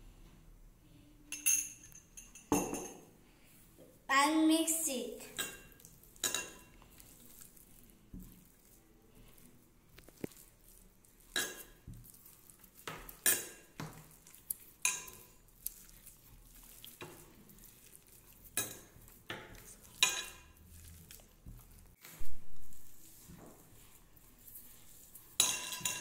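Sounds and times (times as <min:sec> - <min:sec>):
food clinking against glass dish: 0:25.4 - 0:26.0.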